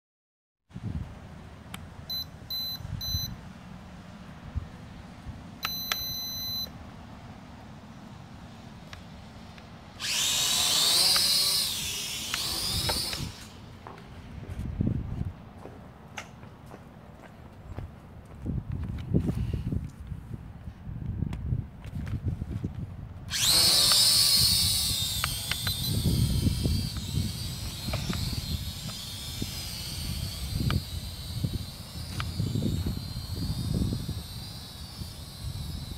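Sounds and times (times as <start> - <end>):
electronic beeps: 2.1 - 3.3, 5.6 - 6.7
drone propellers whining: 7.5 - 14.6, 23.3 - 35.9.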